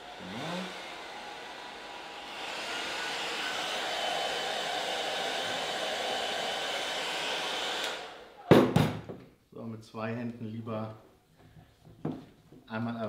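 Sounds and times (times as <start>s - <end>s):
hair dryer blowing with whine: 0.0s - 8.4s.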